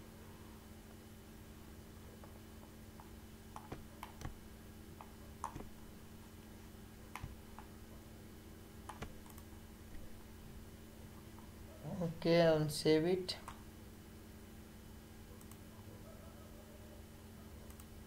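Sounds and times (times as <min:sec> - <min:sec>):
faint electrical hum: 0:00.0 - 0:18.0
mouse and keyboard clicks: 0:03.0 - 0:04.4, 0:05.0 - 0:05.7, 0:07.1 - 0:07.7, 0:08.8 - 0:09.5.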